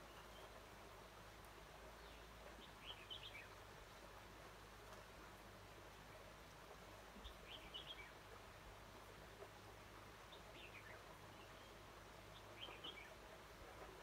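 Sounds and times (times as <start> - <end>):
bird chirping: 2.0 - 3.6, 7.2 - 8.2, 10.3 - 13.2.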